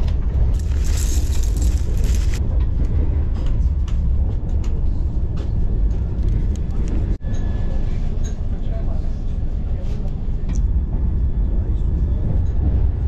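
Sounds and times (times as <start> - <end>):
train rumble inside coach: 0.0 - 13.0
food packaging rustling: 0.5 - 2.4.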